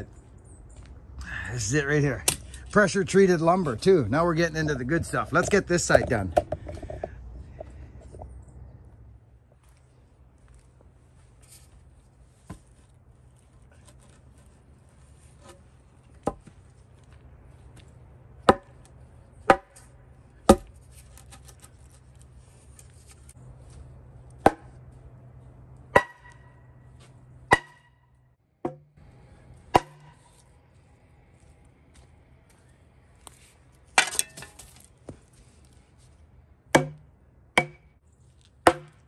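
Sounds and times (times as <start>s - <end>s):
sharp knocks on wooden post: 18.4s - 18.8s, 19.5s - 19.8s, 20.5s - 20.7s, 25.9s - 26.4s, 27.5s - 27.9s, 28.6s - 28.9s, 29.7s - 30.2s, 36.8s - 37.0s, 37.6s - 37.9s, 38.7s - 39.0s.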